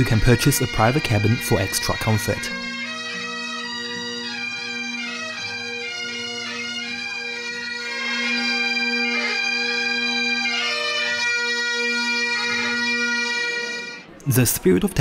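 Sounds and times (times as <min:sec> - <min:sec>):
bagpipes playing over drone: 0:00.0 - 0:14.1.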